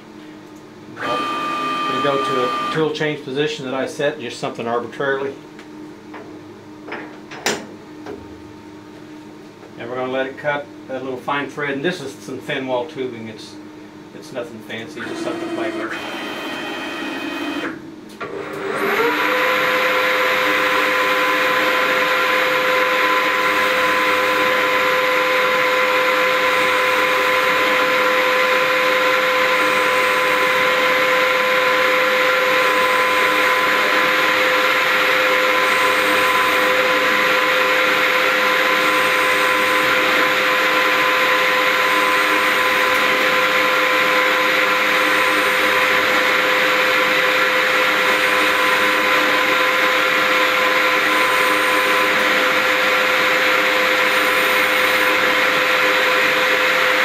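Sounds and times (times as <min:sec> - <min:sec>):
metal lathe whining: 0:01.0 - 0:02.9, 0:15.0 - 0:57.0.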